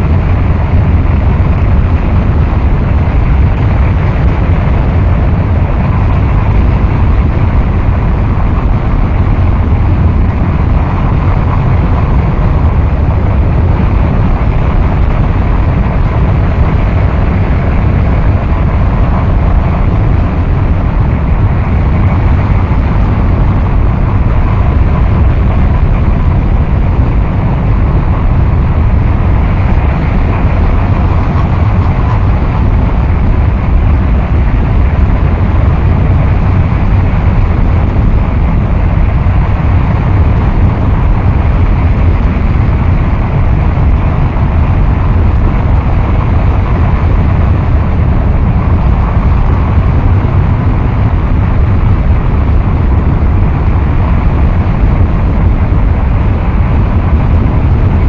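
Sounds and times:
dense distorted noise music: 0:00.0 - 0:58.0.

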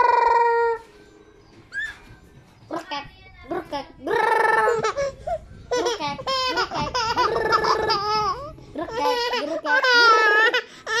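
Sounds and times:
baby laughing: 0:04.3 - 0:11.0.

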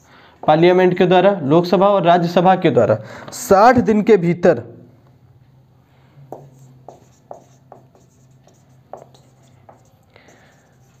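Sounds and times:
marker writing on whiteboard: 0:06.2 - 0:11.0.

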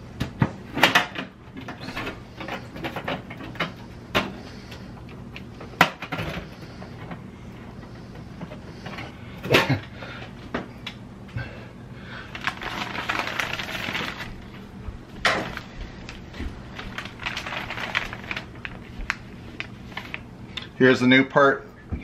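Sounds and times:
plastic bag crinkling: 0:12.2 - 0:20.3.

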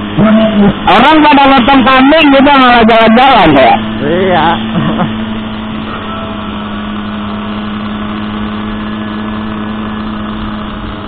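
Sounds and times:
small motorcycle engine droning: 0:00.0 - 0:11.0.

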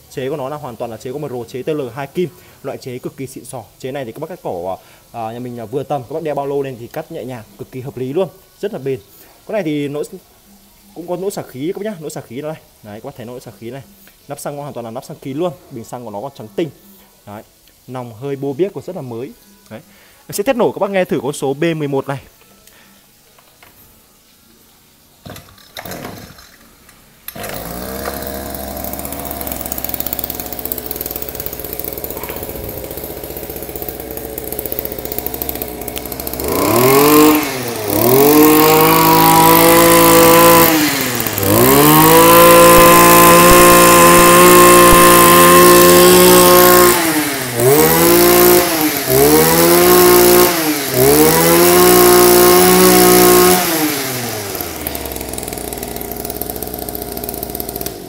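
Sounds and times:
brush cutter engine revving: 0:25.3 - 0:26.5, 0:27.3 - 0:58.0.

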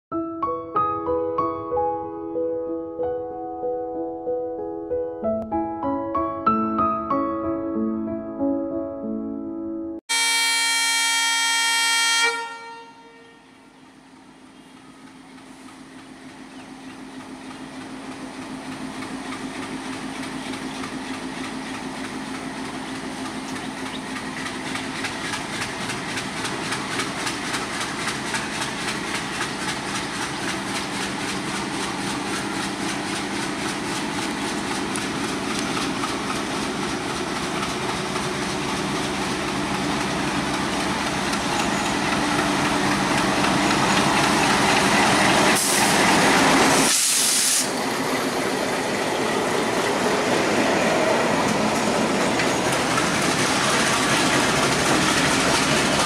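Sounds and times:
locomotive horn blast: 0:10.1 - 0:13.7
locomotive engine and train rumble: 0:10.1 - 0:56.0
wheels clicking over rail joints: 0:14.1 - 0:46.6, 0:51.4 - 0:56.0.

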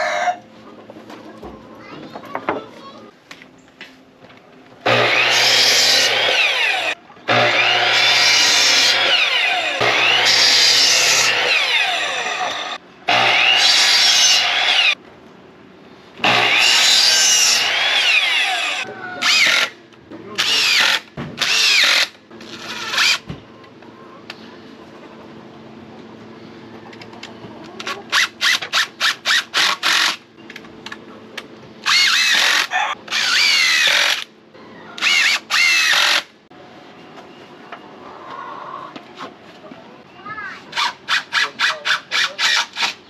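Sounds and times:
miter saw cutting wooden boards: 0:04.8 - 0:15.0, 0:16.2 - 0:19.8, 0:20.4 - 0:23.3, 0:27.8 - 0:30.2, 0:31.8 - 0:34.3, 0:35.0 - 0:36.3.

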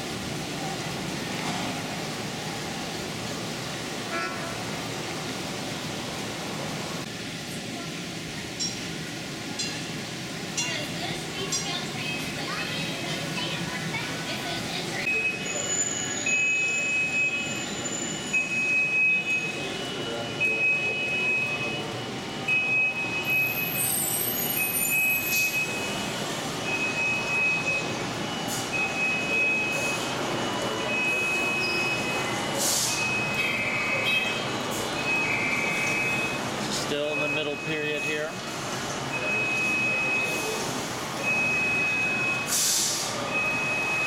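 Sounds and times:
exhibit hall background noise: 0:00.0 - 0:44.0
model train running: 0:01.8 - 0:26.9.

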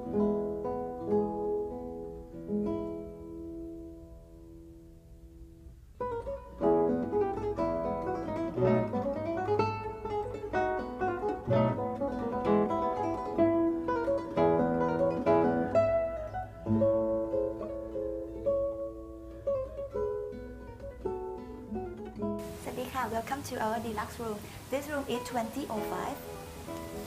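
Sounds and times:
plucked acoustic guitar: 0:00.0 - 0:27.0.

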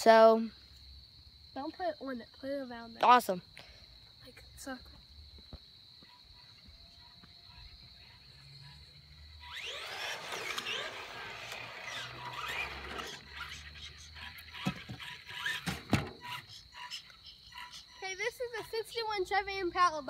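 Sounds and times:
rc car motor and gears whining: 0:07.0 - 0:18.7.

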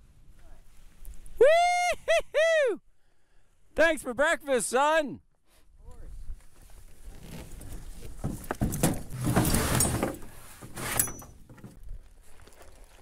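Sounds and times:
harness and frame scraping: 0:05.5 - 0:13.0
metallic clink: 0:10.9 - 0:11.4.

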